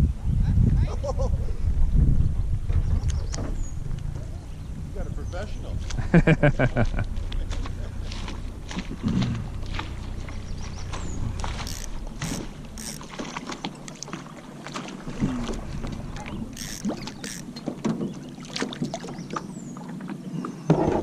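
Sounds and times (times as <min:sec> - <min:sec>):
water lapping against kayak hull: 0:05.7 - 0:21.0
small sharp splashes and knocks: 0:07.2 - 0:20.2.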